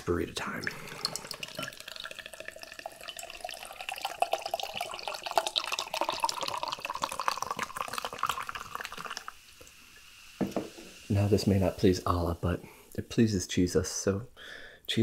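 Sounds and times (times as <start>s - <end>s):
fizzy drink pouring into glass: 0.0s - 12.8s.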